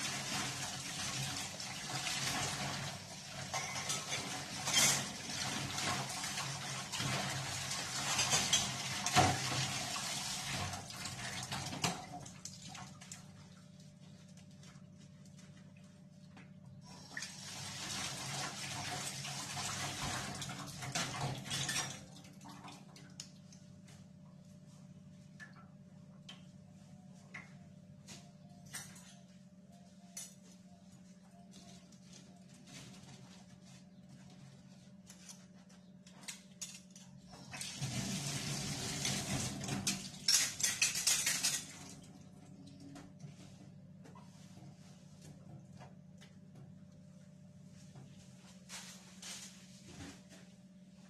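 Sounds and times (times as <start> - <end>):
dishes and utensils clinking: 3.4 - 5.2, 40.2 - 41.7.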